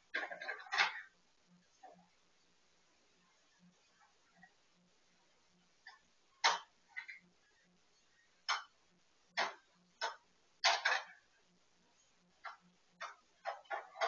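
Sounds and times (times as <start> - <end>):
plastic toy clacking and rattling: 0.1 - 1.1, 9.4 - 11.2.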